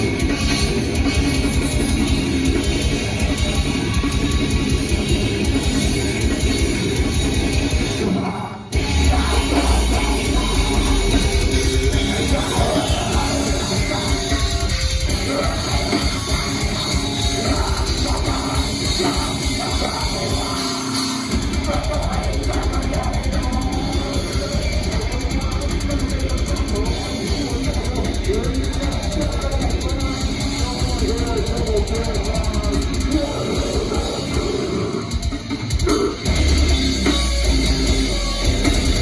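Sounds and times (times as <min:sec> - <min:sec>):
metal band playing live: 0:00.0 - 0:39.0.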